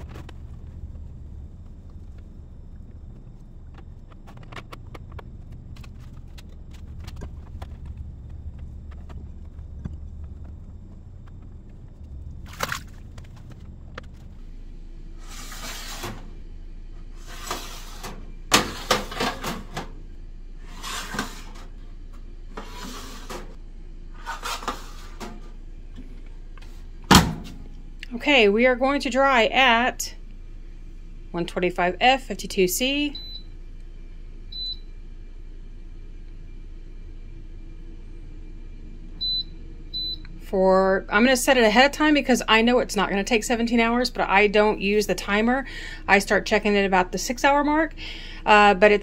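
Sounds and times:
low hum: 0.0s - 49.0s
metal trays sliding into rack: 15.2s - 16.3s, 20.7s - 21.7s.

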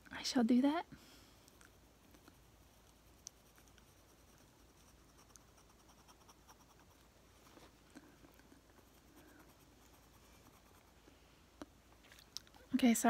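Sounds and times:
pencil scratching on paper: 2.8s - 7.0s, 8.7s - 11.0s.

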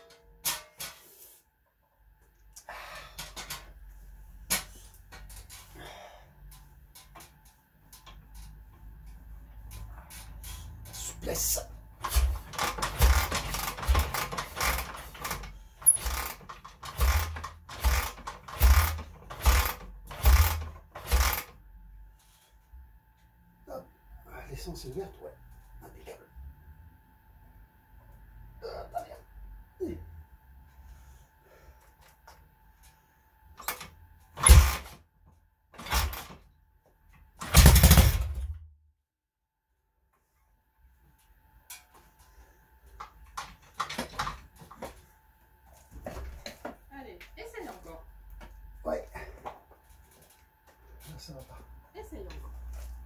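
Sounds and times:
motorcycle kick-start strokes: 12.0s - 21.6s, 34.4s - 35.0s.

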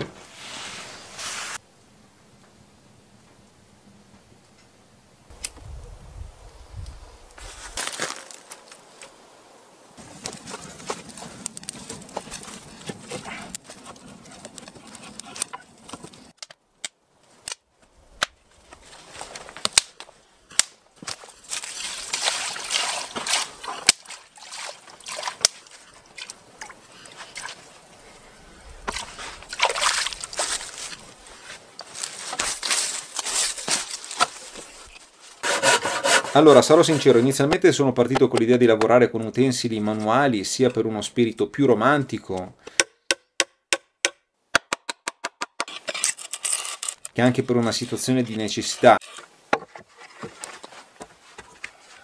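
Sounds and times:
water from hose into bucket: 21.3s - 27.8s, 28.9s - 31.1s.

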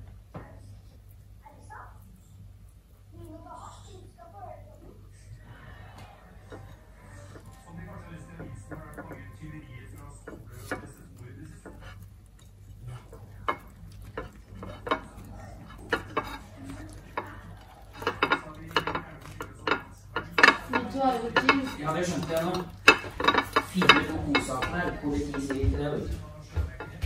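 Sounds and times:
tortilla rustling: 5.5s - 26.9s
clicks and taps on plate: 8.4s - 9.3s, 10.0s - 27.0s.

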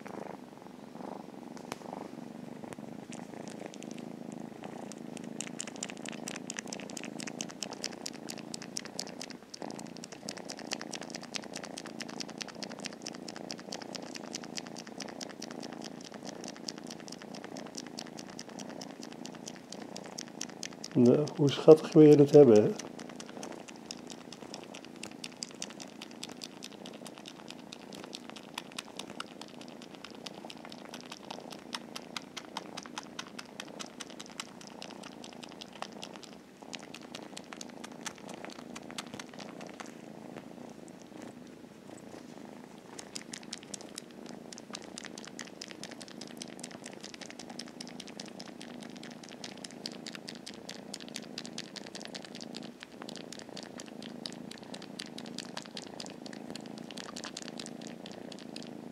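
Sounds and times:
kitten purring: 0.0s - 58.9s
wet smacking clicks of suckling: 3.2s - 58.9s.

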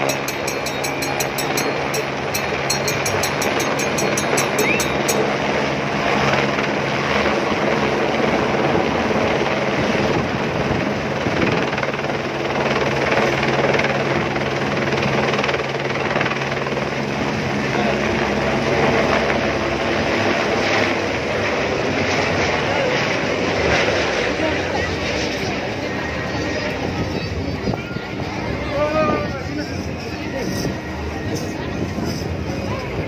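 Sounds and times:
fast high-pitched ticking: 0.0s - 5.4s
helicopter rotor and turbine: 0.0s - 33.0s.

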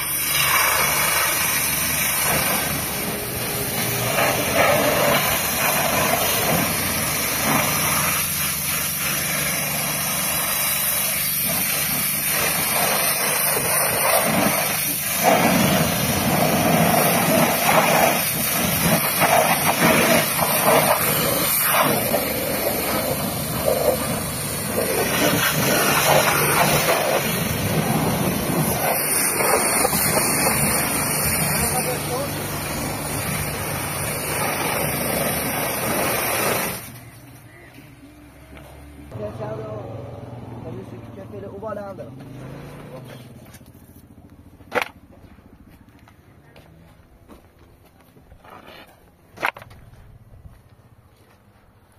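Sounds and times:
pressure washer jet hissing: 0.0s - 37.4s.

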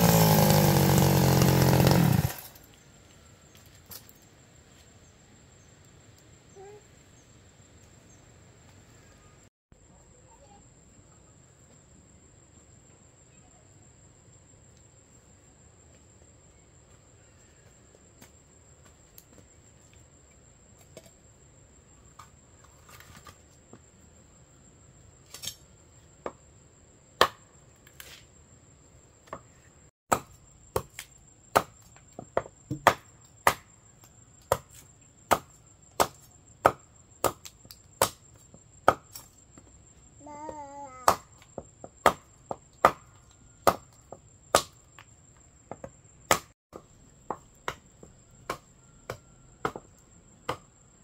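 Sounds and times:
machete chopping wood: 0.0s - 2.5s, 27.2s - 27.5s, 30.1s - 31.8s, 32.4s - 33.8s, 34.4s - 39.2s, 41.0s - 41.4s, 42.0s - 44.8s, 45.8s - 47.8s, 48.4s - 49.9s, 50.5s - 50.7s.

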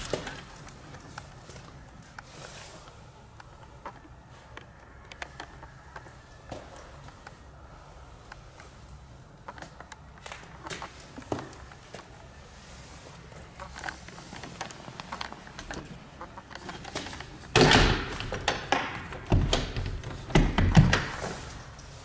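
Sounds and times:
knocks and rattles: 14.6s - 21.4s
door closing with a thud: 17.5s - 21.4s.

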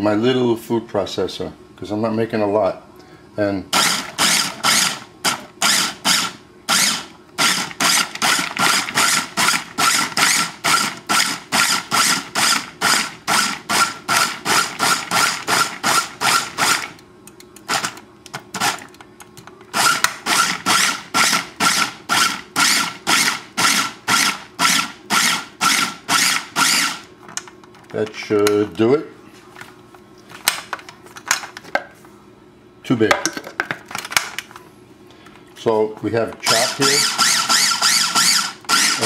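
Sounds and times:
food processor pulsing: 3.7s - 17.0s, 19.8s - 27.1s, 36.5s - 39.0s.

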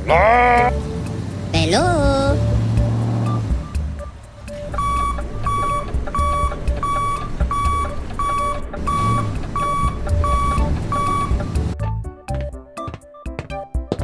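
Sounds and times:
low engine rumble: 0.0s - 12.0s
vehicle reversing alarm beeping: 3.3s - 11.8s.

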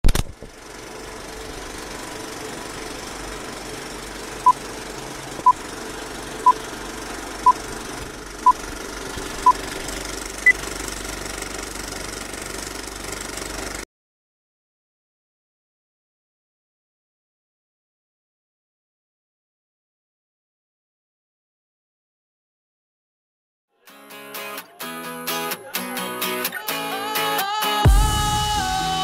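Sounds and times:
film projector whirring: 0.1s - 13.9s.

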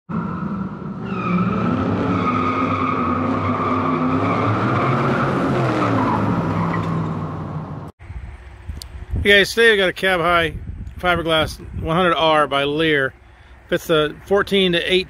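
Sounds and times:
car tyres squealing: 0.1s - 7.8s
car engine revving: 0.1s - 7.9s.

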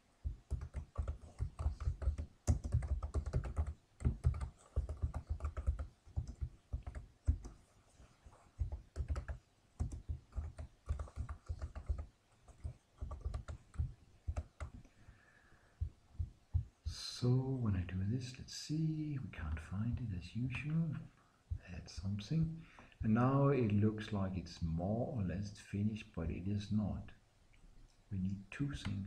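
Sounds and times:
typing on keyboard: 0.2s - 7.6s, 8.6s - 14.9s.

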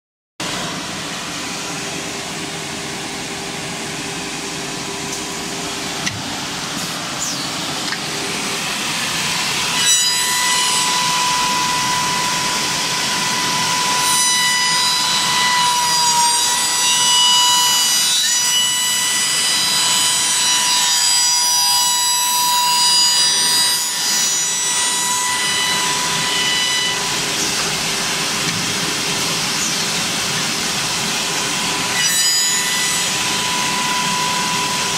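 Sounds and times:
steady high whine: 0.4s - 14.5s
wood shaper machine cutting wood: 0.4s - 34.9s.

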